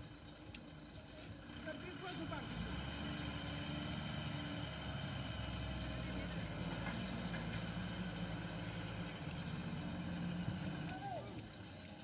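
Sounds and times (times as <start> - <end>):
truck diesel engine droning: 0.0 - 12.0.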